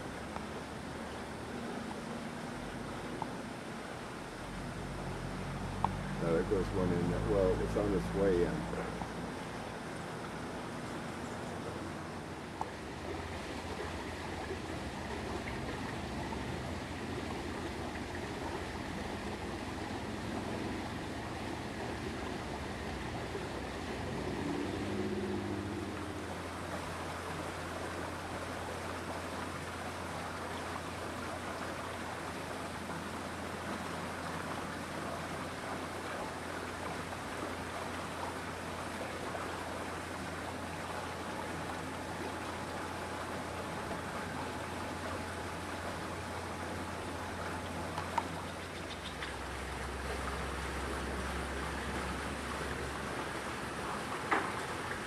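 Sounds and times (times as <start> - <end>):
constant low hum: 0.0 - 55.0
rushing outdoor noise: 0.0 - 55.0.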